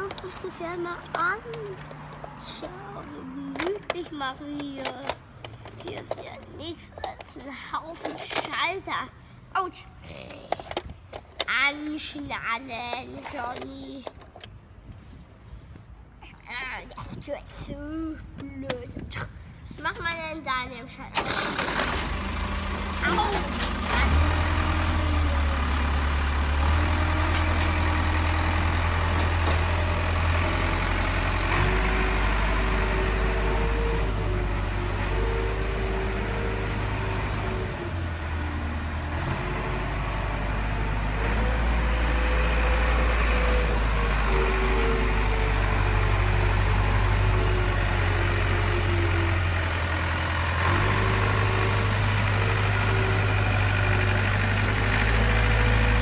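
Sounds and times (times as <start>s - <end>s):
track loader engine idling: 21.1s - 56.0s.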